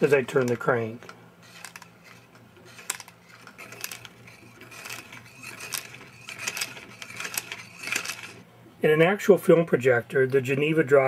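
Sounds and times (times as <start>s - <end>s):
projector mechanism clicking: 0.0s - 8.4s.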